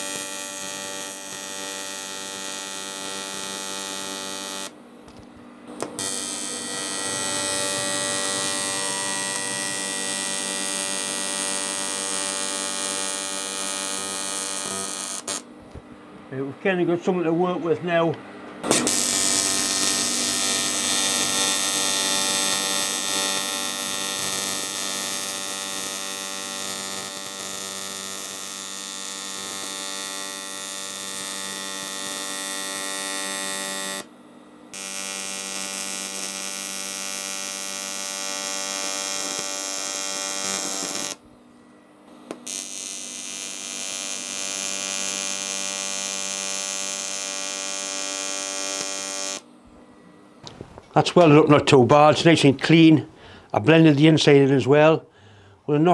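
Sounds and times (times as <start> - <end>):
welding arc buzzing: 0.0 - 5.2, 5.8 - 15.6, 18.6 - 34.1, 34.7 - 41.2, 42.2 - 49.5.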